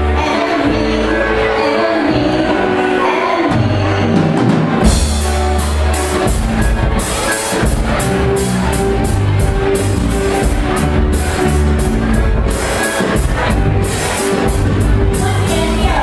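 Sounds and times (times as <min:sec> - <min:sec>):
live rock band playing: 0:00.0 - 0:16.0
bass drum: 0:03.8 - 0:16.0.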